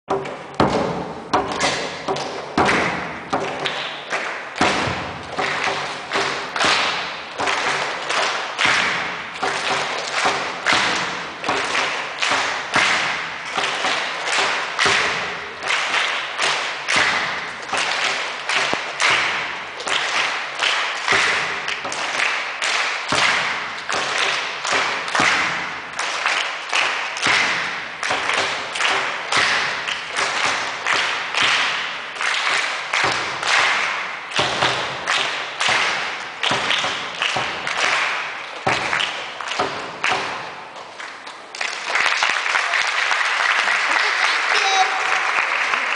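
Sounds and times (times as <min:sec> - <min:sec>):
frame drum struck with beater: 0:00.1 - 0:03.9, 0:04.6 - 0:19.7.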